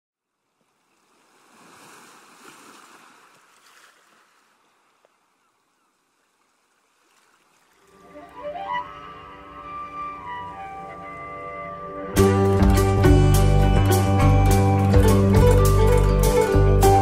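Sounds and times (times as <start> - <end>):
music with strings: 7.8 - 17.0.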